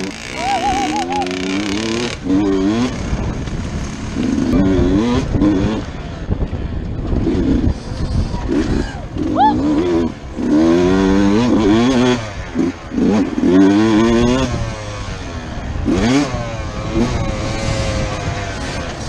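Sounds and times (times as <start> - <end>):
dirt bike engine revving: 0.0 - 19.0.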